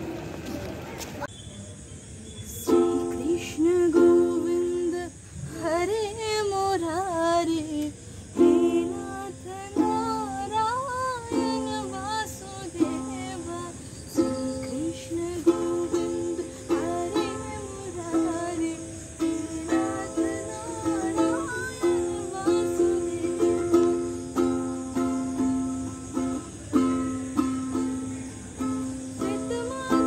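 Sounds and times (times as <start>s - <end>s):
ukulele strumming chords: 2.7s - 5.1s, 8.4s - 30.0s
person singing: 2.7s - 6.2s, 6.8s - 26.9s, 29.2s - 30.0s.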